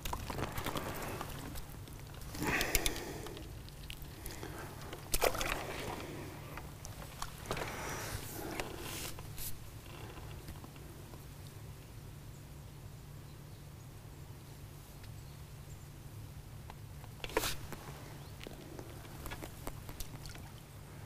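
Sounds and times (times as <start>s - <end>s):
faint rustles: 0.0s - 11.6s, 17.2s - 21.0s
low outdoor rumble: 0.0s - 21.0s.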